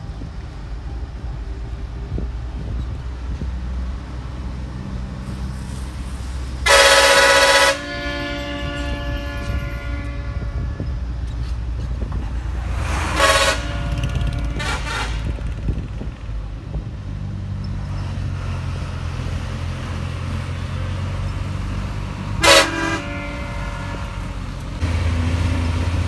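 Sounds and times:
bus engine running: 0:00.0 - 0:26.0
bus horn blast: 0:06.6 - 0:11.6, 0:12.6 - 0:15.6, 0:22.4 - 0:24.5.

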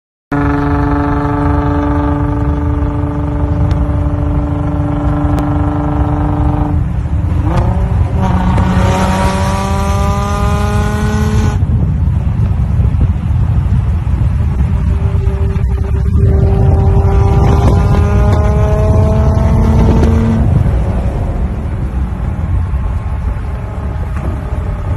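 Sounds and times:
car engine running hard: 0:00.3 - 0:24.9
road and wind rumble: 0:00.3 - 0:24.9.

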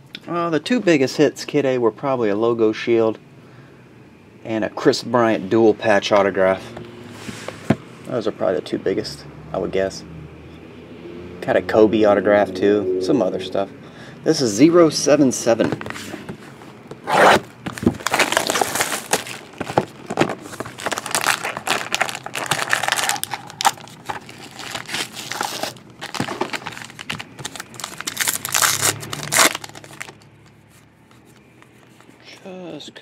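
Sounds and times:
plastic wrapper crinkling and tearing: 0:17.7 - 0:30.6.

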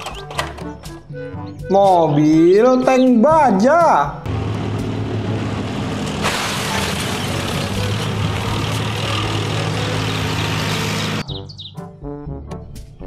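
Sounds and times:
tank engine drone: 0:04.3 - 0:11.3.

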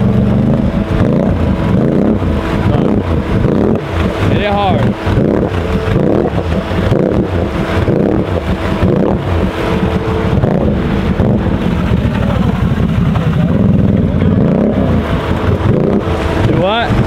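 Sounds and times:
vehicle engine revving: 0:00.0 - 0:17.0.

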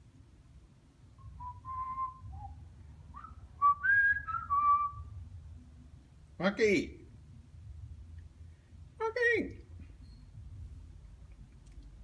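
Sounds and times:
parrot whistling: 0:01.2 - 0:05.1.

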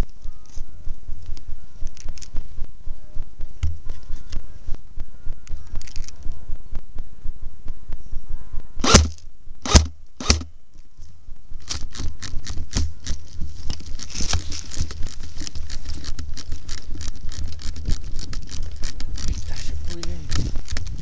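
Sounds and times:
wind rumble on microphone: 0:11.2 - 0:21.0.

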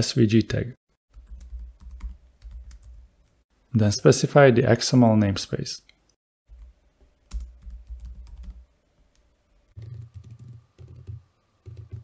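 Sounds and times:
computer keyboard typing: 0:01.1 - 0:03.0, 0:07.3 - 0:08.6, 0:09.8 - 0:12.0.

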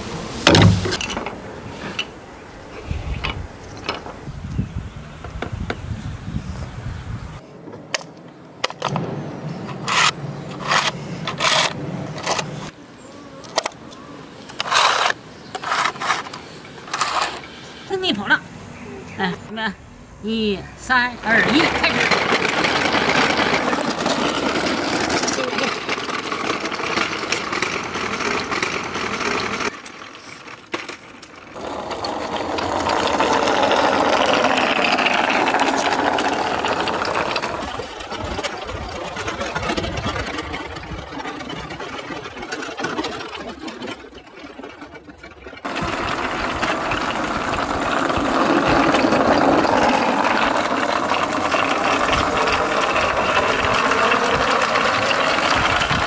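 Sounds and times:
toy motor whirring: 0:14.6 - 0:17.5, 0:21.5 - 0:30.9, 0:31.5 - 0:56.0.

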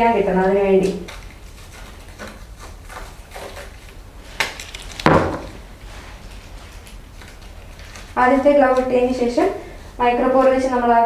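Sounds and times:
coverall and tape rustling: 0:00.0 - 0:11.0
tape roll knocking on table: 0:05.0 - 0:05.6.

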